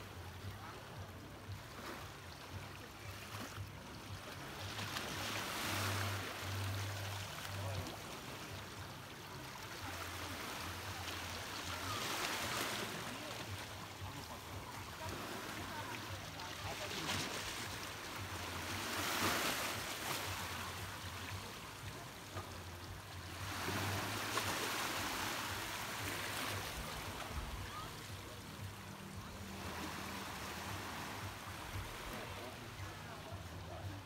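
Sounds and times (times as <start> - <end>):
waves washing over stones: 1.3 - 33.1.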